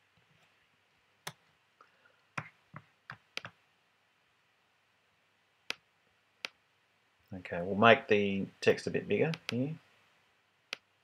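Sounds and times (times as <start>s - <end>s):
computer mouse clicking: 3.1s - 3.6s, 9.3s - 9.6s.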